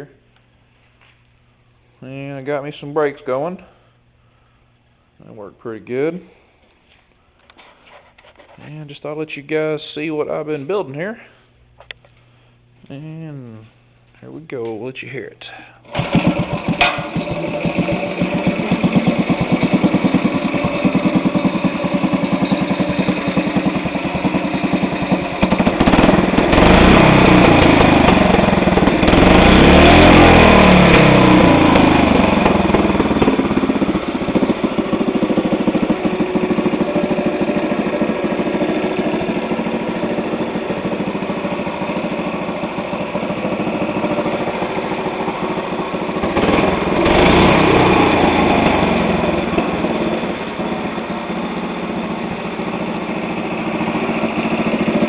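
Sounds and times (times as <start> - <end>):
small engine running and revving: 15.9 - 55.0.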